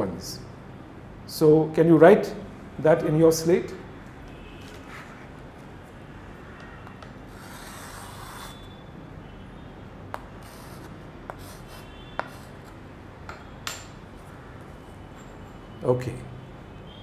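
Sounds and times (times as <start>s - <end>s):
chalk scratching on slate: 7.3s - 8.7s, 10.4s - 12.8s
chalk tapping on slate: 10.1s - 12.8s.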